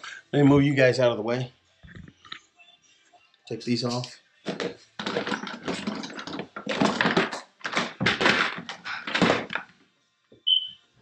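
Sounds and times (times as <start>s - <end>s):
objects clattering and knocking: 3.8s - 9.8s.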